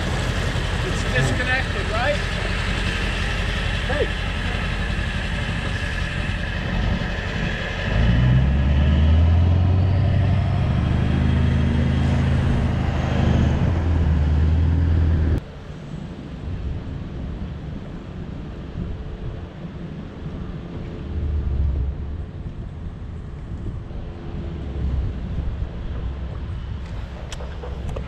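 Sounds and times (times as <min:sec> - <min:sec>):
boat engine humming: 0:00.0 - 0:15.4.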